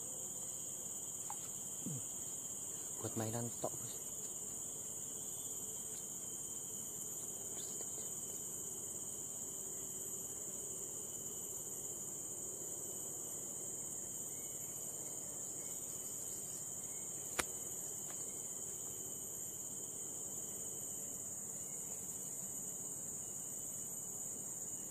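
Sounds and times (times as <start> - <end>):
insects droning: 0.0 - 24.9
sharp click: 17.3 - 17.5.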